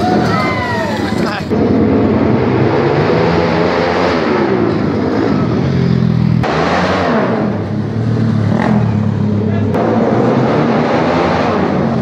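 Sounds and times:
dirt bike engines revving: 0.0s - 12.0s.

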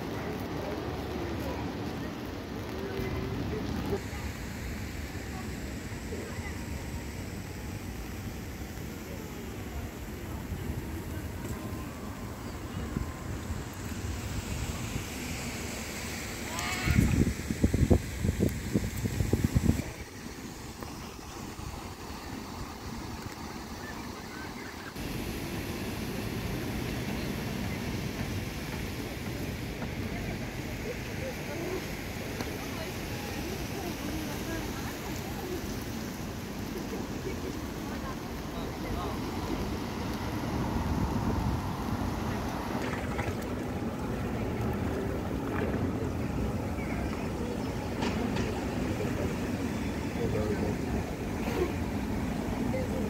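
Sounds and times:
faint voices of passers-by: 0.0s - 53.0s
traffic rumble: 0.0s - 53.0s
wet city street ambience: 0.0s - 53.0s
wind on microphone: 12.4s - 21.8s, 39.2s - 47.9s.

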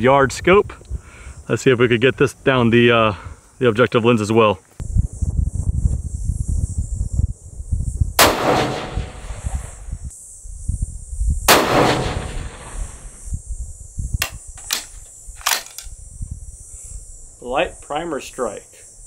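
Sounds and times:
insects buzzing: 0.0s - 19.0s
rifle shots with rolling echo: 8.2s - 9.8s, 11.5s - 13.2s.

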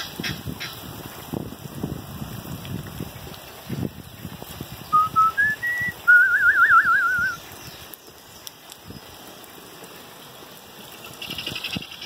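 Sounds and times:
rain hissing: 0.0s - 12.0s
whistled phrase with trill: 4.9s - 7.4s.

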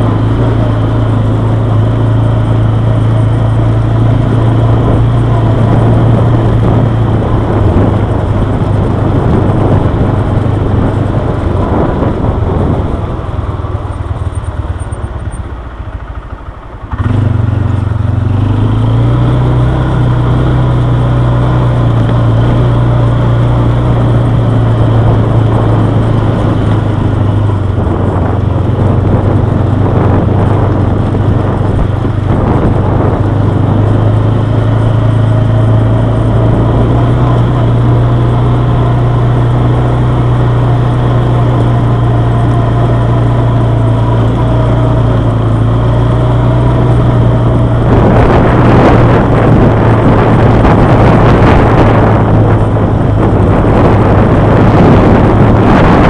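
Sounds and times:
quad bike engine running: 0.0s - 56.0s.

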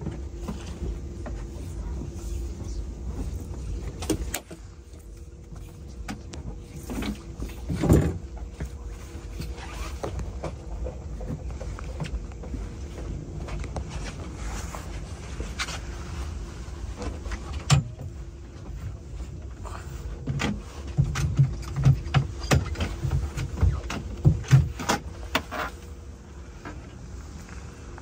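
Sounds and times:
low hum and rumble: 0.0s - 28.0s
knocks and taps on a boat: 20.2s - 25.5s.

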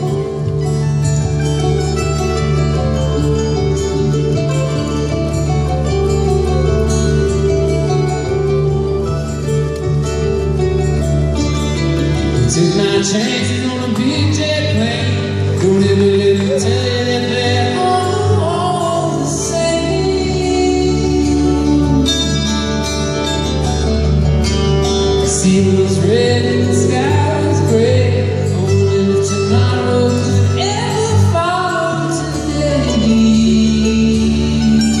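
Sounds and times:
acoustic string band playing: 0.0s - 35.0s
person singing: 12.0s - 23.6s, 25.2s - 35.0s.

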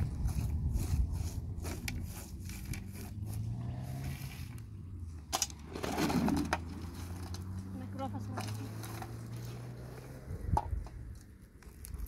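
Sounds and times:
scrapes and clicks on gravel: 0.0s - 4.7s, 5.3s - 12.0s
rustling scrape: 0.0s - 4.8s, 5.6s - 7.6s
car engine humming: 0.6s - 11.1s.

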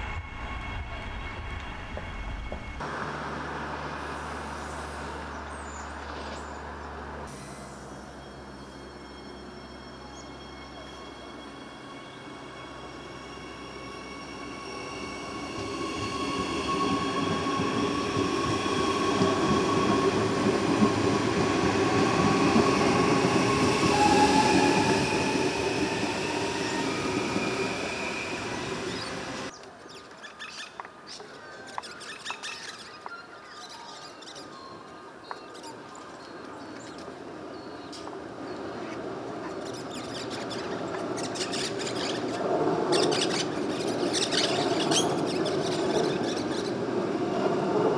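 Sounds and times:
electric train approaching: 0.0s - 29.5s, 36.3s - 47.9s
electric train running: 7.2s - 29.5s
train wheel squeal: 7.3s - 29.5s, 31.9s - 47.9s.

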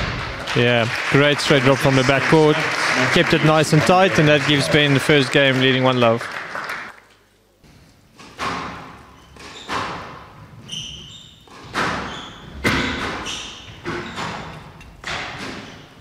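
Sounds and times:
squash ball hits: 8.2s - 10.4s, 11.5s - 15.8s
shoes squeaking on wooden floor: 9.0s - 14.8s.

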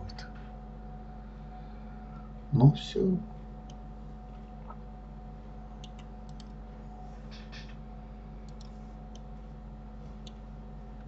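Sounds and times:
low electrical hum: 0.0s - 11.0s
mouse and keyboard clicks: 5.8s - 6.5s.

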